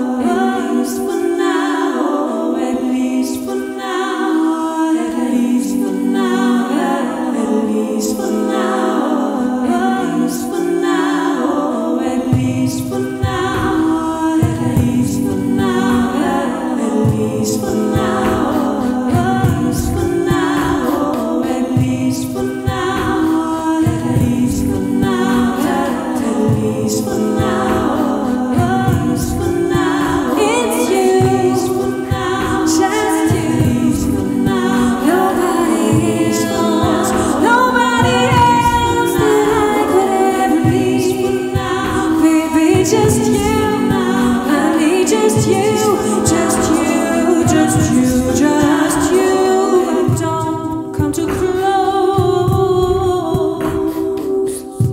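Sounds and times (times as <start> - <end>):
a cappella vocal backing: 0.0 - 54.9
woman singing into a microphone: 0.0 - 54.9
regular beat: 12.3 - 50.5.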